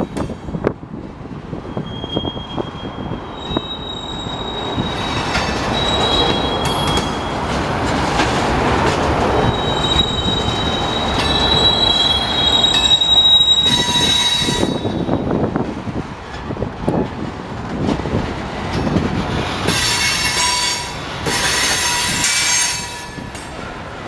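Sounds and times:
freight train rumbling: 0.0 - 24.0
train wheels squealing on rail: 1.6 - 7.5, 9.4 - 15.4, 19.6 - 23.7.

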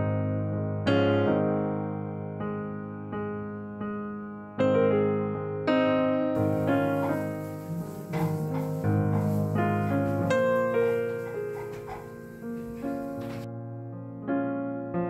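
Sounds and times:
piano music: 6.3 - 15.0.

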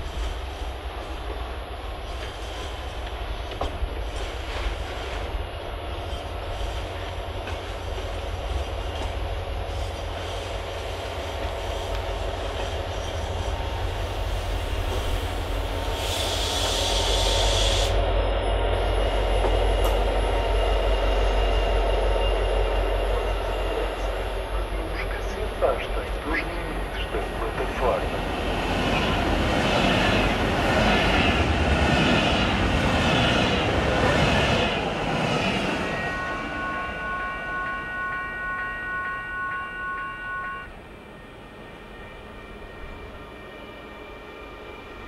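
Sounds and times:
train wheels rumbling and clicking: 0.0 - 40.7
diesel locomotive engine: 0.0 - 45.0.

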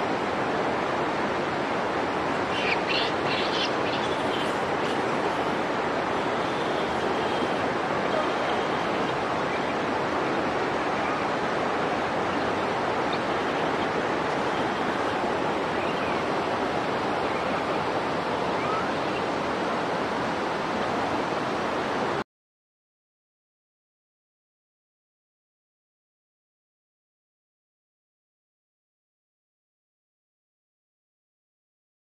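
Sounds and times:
flowing water rushing: 0.0 - 22.2.

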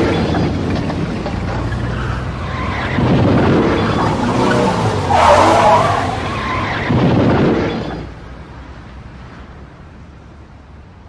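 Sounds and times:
car tyres screeching: 0.0 - 8.4
cars crashing: 0.0 - 9.5.

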